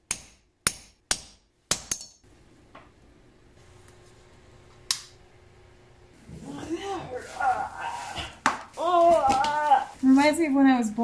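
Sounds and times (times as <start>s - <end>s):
faint steady hum: 2.2s - 11.0s.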